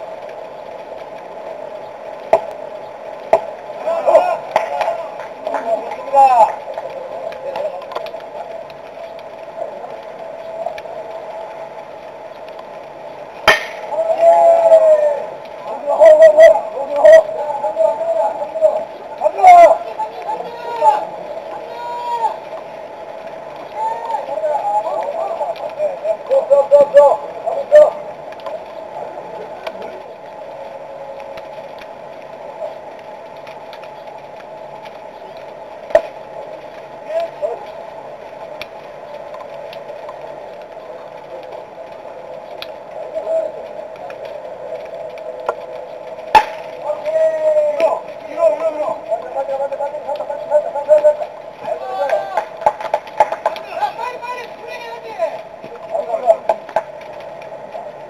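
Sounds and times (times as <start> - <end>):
steady background noise: 0.0 - 58.0
players calling out: 3.3 - 11.9, 13.4 - 31.6, 46.3 - 58.0
faint clicks: 4.4 - 21.7, 22.3 - 58.0
baseball bat crack: 13.4 - 13.9, 46.3 - 46.6.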